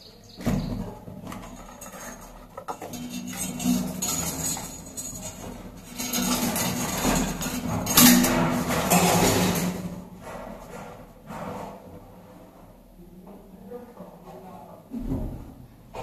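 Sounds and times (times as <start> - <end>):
clinking and scraping of wiring work: 0.0 - 12.7.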